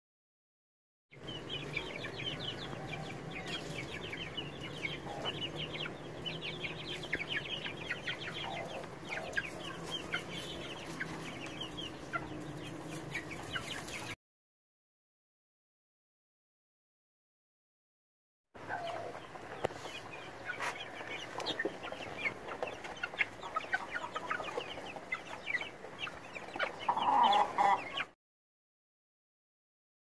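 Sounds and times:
chicks peeping: 1.1 - 14.2, 18.6 - 28.2.

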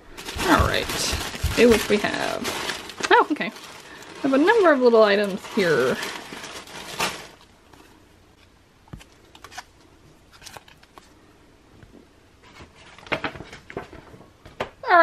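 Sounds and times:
foil packet crinkling: 0.0 - 8.0, 9.0 - 11.2
tissue paper rustling: 0.0 - 8.0.

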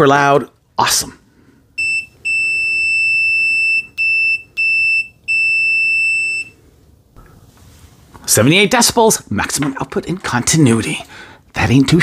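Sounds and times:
multimeter continuity beeps: 1.8 - 6.6.

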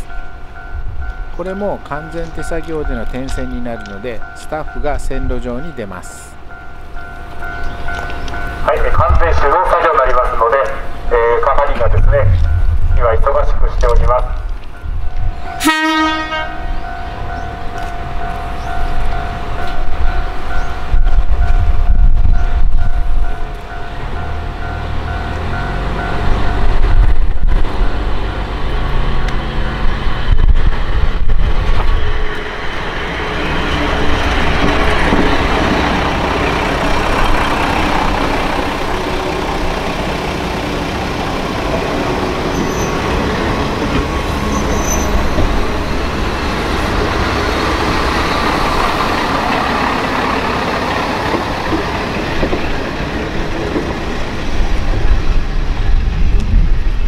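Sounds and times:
train wheels rolling on rails: 0.0 - 15.6, 16.5 - 57.0
diesel railcar engine running: 0.0 - 57.0
brief high squeals: 44.5 - 45.4.

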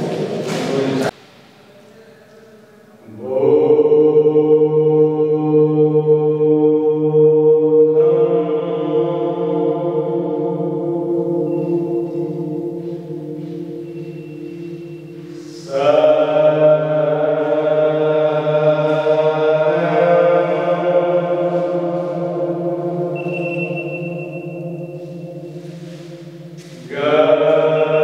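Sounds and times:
voice chanting echoing notes: 0.0 - 28.0.

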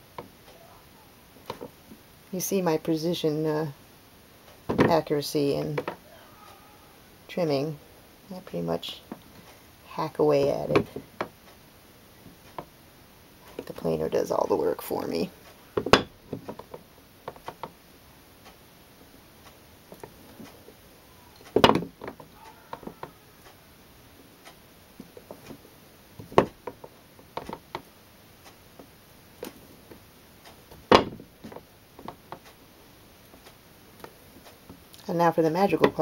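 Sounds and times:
loud knocks: 21.6 - 23.1, 30.9 - 31.3.

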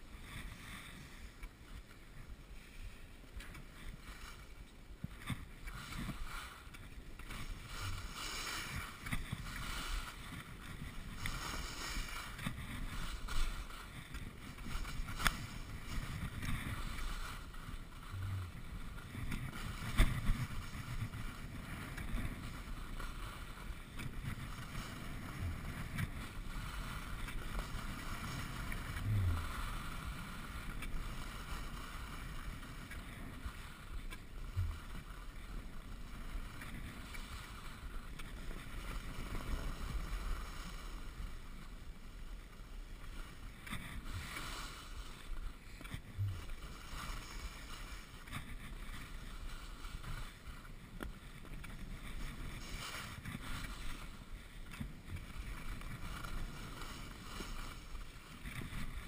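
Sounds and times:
skis scraping over snow: 0.0 - 59.0
wind rushing over microphone: 4.0 - 35.2.

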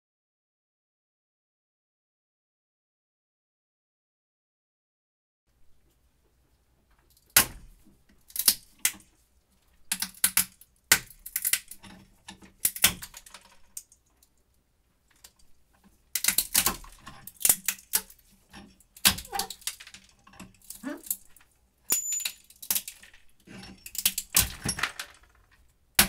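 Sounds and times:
nut shells cracking in a vise: 8.2 - 9.1, 9.9 - 14.2, 16.1 - 18.2, 18.9 - 26.0.

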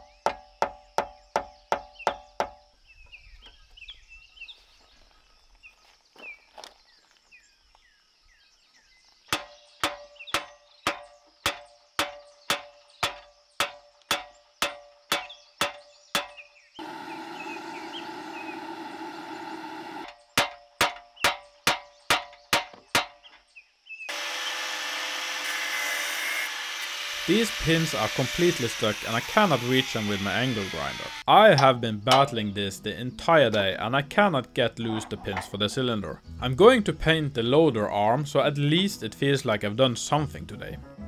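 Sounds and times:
faint bird chirps: 0.0 - 13.6
hammer striking metal pins: 9.3 - 16.4, 20.4 - 23.2, 31.5 - 32.4.

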